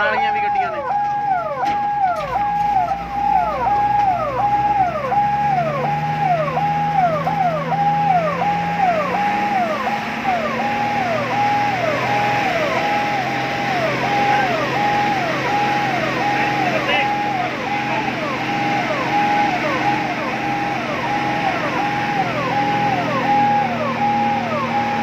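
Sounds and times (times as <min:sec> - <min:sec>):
electronic siren: 0:00.0 - 0:25.0
vehicle engine running low: 0:00.0 - 0:25.0.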